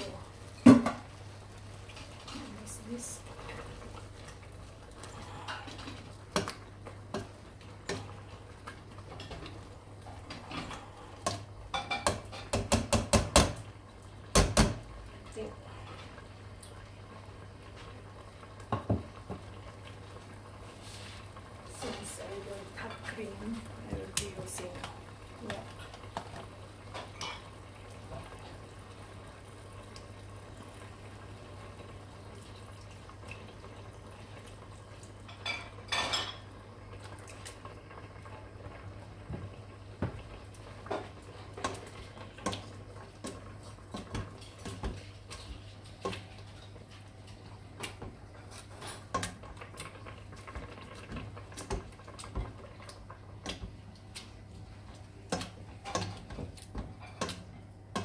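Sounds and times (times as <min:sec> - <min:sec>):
masher knocking against a pot: 0:11.9 - 0:13.6.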